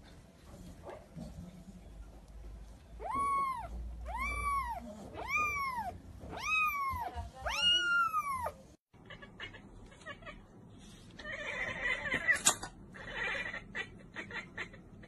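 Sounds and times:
kitten meowing: 0:03.0 - 0:08.6.

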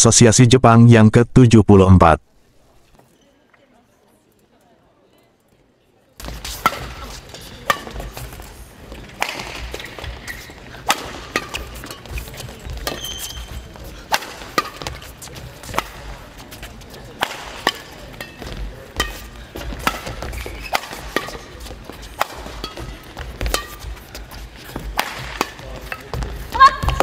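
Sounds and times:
shoes squeaking on court: 0:02.6 - 0:03.6, 0:06.2 - 0:27.0
racquets striking shuttlecock: 0:06.2 - 0:27.0.

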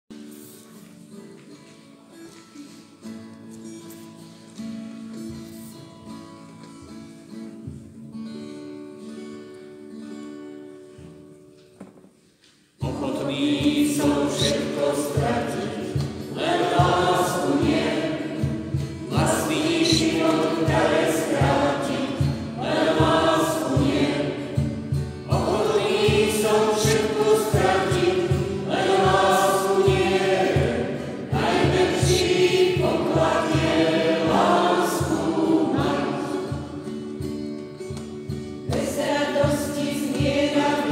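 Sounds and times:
acoustic guitar strumming: 0:00.1 - 0:40.9
choir singing: 0:12.8 - 0:37.3, 0:38.7 - 0:40.9.

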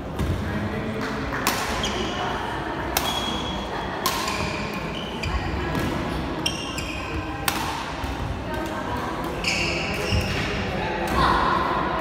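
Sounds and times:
murmur of voices: 0:00.0 - 0:12.0
rackets striking shuttlecock: 0:01.4 - 0:02.0, 0:02.9 - 0:04.7, 0:07.4 - 0:10.5.

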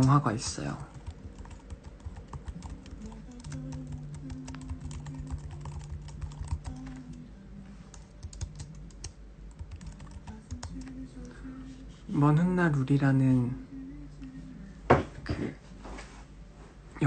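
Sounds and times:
quiet background music: 0:00.0 - 0:17.0.

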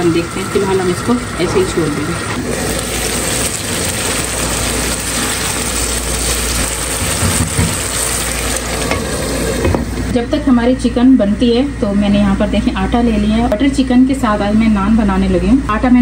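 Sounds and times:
chicken sizzling in pan: 0:02.4 - 0:09.7.

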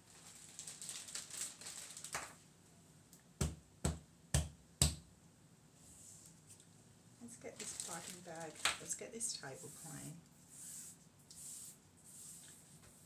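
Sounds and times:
soft rustling: 0:05.8 - 0:13.0.

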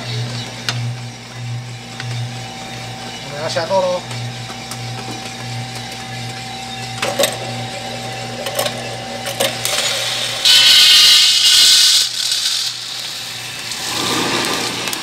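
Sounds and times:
coffee roaster humming: 0:00.0 - 0:15.0
roaster clicks: 0:04.0 - 0:15.0.

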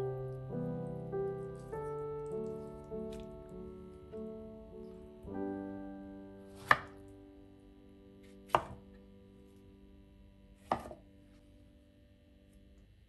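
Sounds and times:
soft background music: 0:00.0 - 0:13.0
knife chopping on plastic board: 0:06.6 - 0:07.0, 0:08.5 - 0:08.8, 0:10.7 - 0:11.0.

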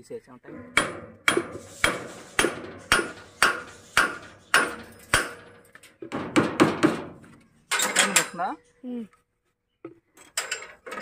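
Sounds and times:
hammer striking metal: 0:00.5 - 0:07.1.

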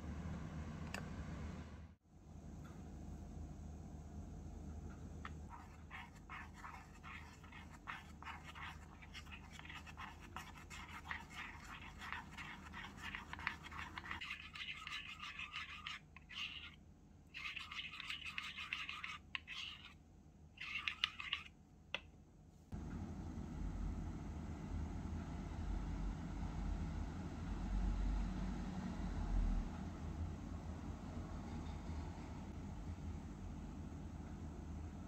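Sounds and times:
utensil scraping small bowl: 0:05.2 - 0:16.8, 0:17.4 - 0:20.0, 0:20.6 - 0:21.5.

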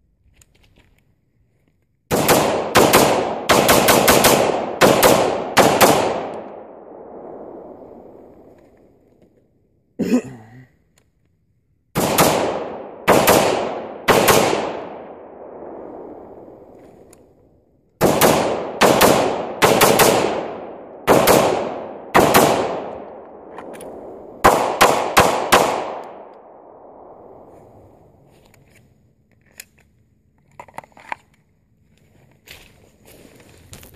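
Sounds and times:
pistol shots: 0:02.1 - 0:07.4, 0:12.0 - 0:16.1, 0:18.0 - 0:27.2
rifle shots with rolling echo: 0:02.1 - 0:09.0, 0:11.9 - 0:16.9, 0:18.0 - 0:28.3.

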